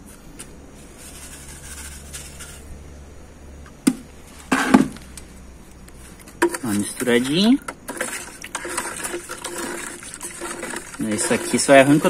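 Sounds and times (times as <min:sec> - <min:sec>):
granules rustling: 0:00.4 - 0:02.7
scoop clattering against bucket: 0:06.2 - 0:12.0.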